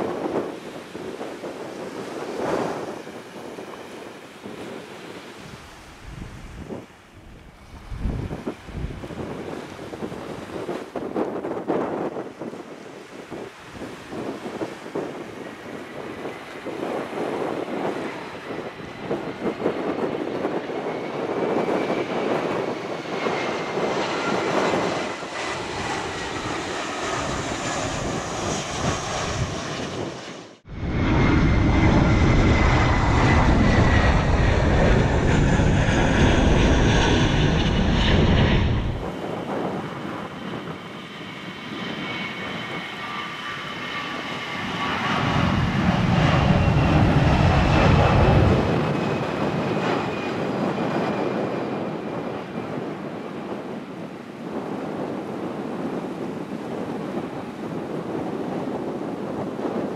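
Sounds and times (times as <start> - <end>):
jet engines roaring: 0.0 - 59.9
heavy low rumble: 23.6 - 39.2.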